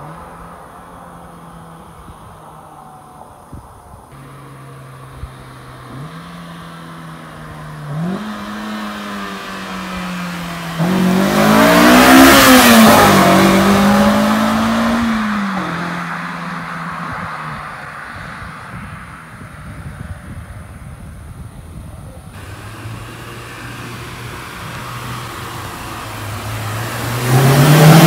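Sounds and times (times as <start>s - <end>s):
car engine accelerating past: 4.2s - 19.5s, 22.4s - 28.0s.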